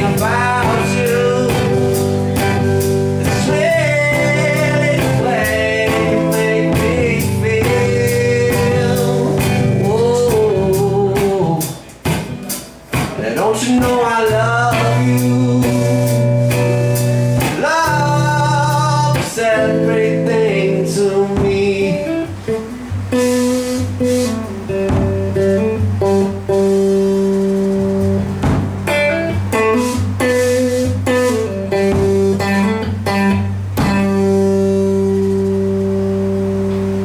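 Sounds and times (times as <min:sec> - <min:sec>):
person singing: 0:00.0 - 0:02.5, 0:03.1 - 0:16.6, 0:17.4 - 0:22.5
bass line: 0:00.0 - 0:37.0
electric guitar bending notes: 0:00.0 - 0:37.0
sharp drum hits: 0:23.2 - 0:33.2.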